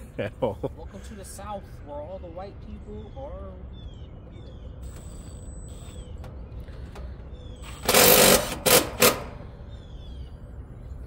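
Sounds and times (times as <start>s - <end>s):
cordless drill spinning: 7.6s - 9.2s.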